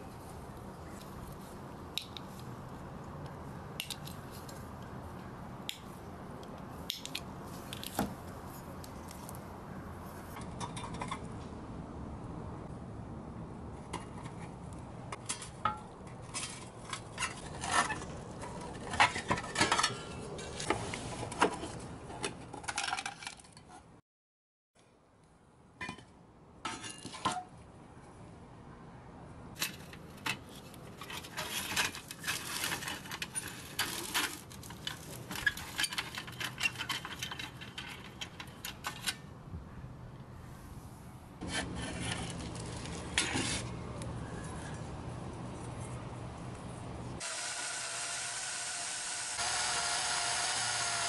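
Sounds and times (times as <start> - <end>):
metal toy parts clinking and scraping: 29.6 - 39.2.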